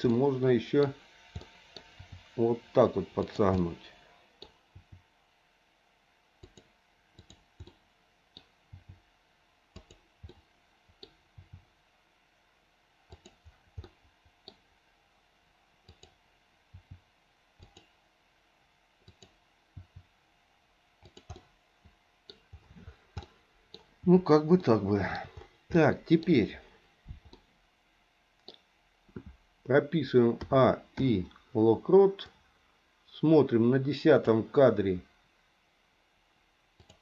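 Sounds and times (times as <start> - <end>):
mouse clicks: 6.4 - 9.0, 9.8 - 11.6, 13.1 - 14.6, 15.9 - 16.2, 17.6 - 17.9, 19.0 - 20.0, 21.0 - 21.5, 27.1 - 27.5, 36.8 - 37.0
keyboard key presses: 21.0 - 21.5.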